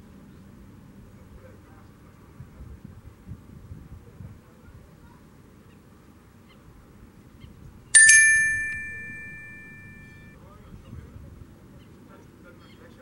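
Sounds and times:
bright bell-like chime: 0:08.0 - 0:10.3.

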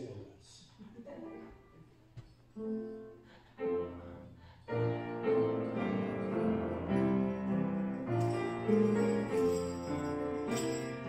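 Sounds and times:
piano chords: 0:02.6 - 0:11.0.

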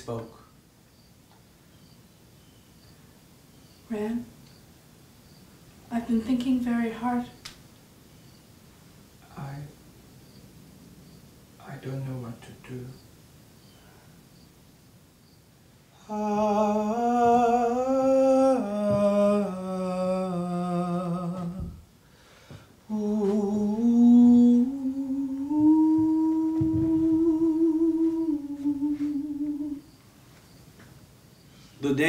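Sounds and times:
person humming a slow melody: 0:15.9 - 0:21.9, 0:22.8 - 0:30.0.

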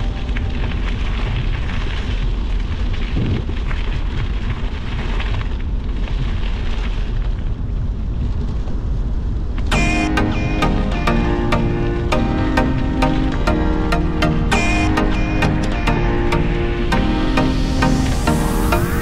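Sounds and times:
wind buffeting microphone: 0:00.0 - 0:09.7.

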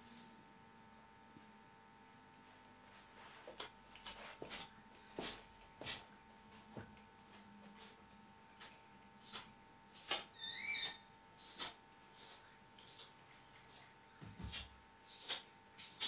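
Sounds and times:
faint steady hum: 0:00.0 - 0:16.0
marker drawing on whiteboard: 0:08.6 - 0:13.2.

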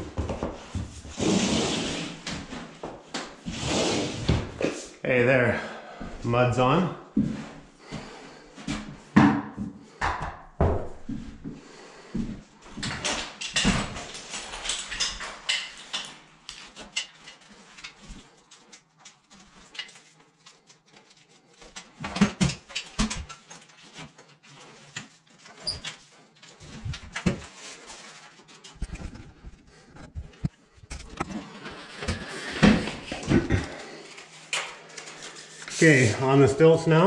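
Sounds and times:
straps rustling: 0:23.3 - 0:36.2.

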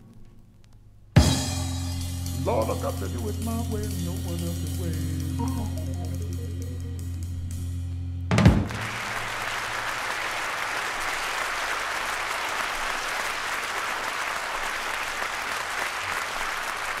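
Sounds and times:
audience applauding: 0:08.5 - 0:17.0.

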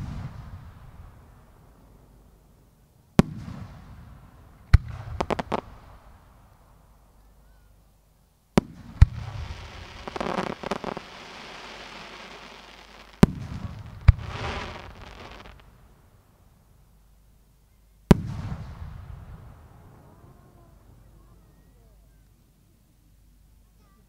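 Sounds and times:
firework crackling hiss: 0:08.6 - 0:15.7.

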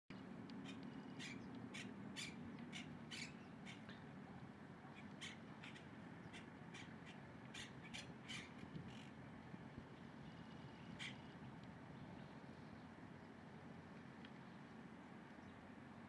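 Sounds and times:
steady low hum: 0:00.1 - 0:16.0
short harsh bird calls: 0:00.6 - 0:03.9, 0:05.0 - 0:09.1.

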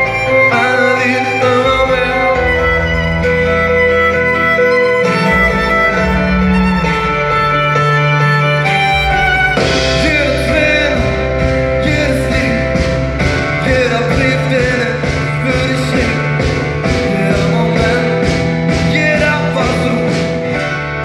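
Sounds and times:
live pop band playing: 0:00.0 - 0:21.0
steady drum beat: 0:00.0 - 0:21.0.

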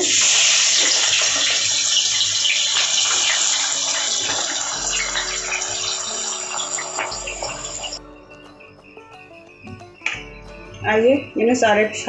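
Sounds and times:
onions sizzling in hot oil: 0:00.0 - 0:08.0
soft background music: 0:02.6 - 0:12.0.

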